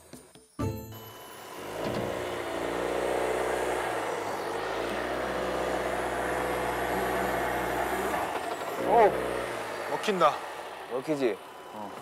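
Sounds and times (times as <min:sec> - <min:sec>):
wheels spinning in sand: 0:01.2 - 0:12.0
van engine revving: 0:01.3 - 0:12.0.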